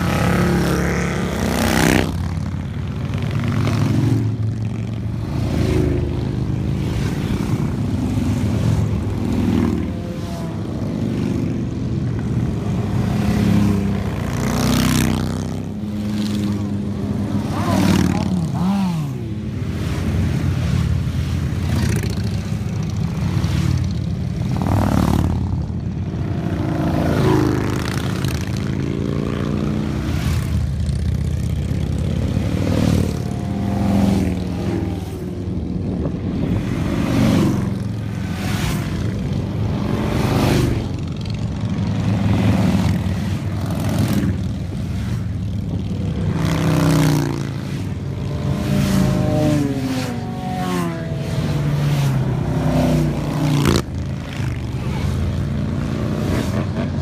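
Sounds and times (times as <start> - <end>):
motorcycles passing by rumbling: 0.0 - 57.0.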